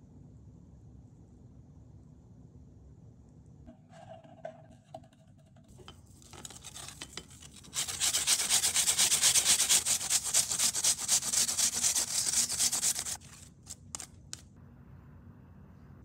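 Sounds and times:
apple grated on metal grater: 5.8s - 14.1s.

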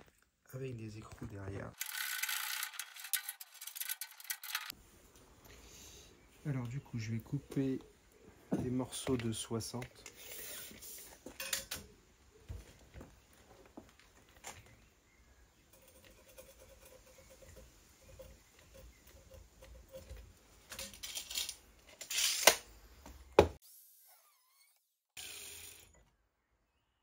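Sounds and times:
light metal rattle: 1.8s - 4.7s.

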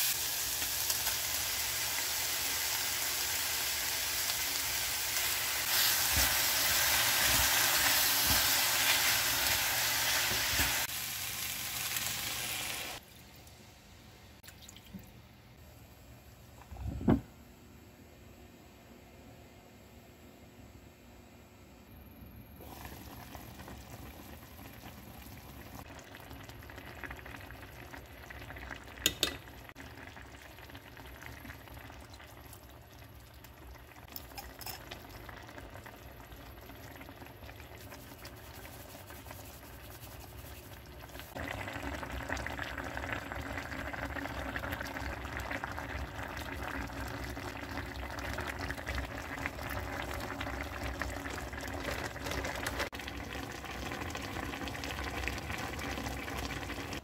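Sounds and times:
stew bubbling in a pot: 22.6s - 57.0s.

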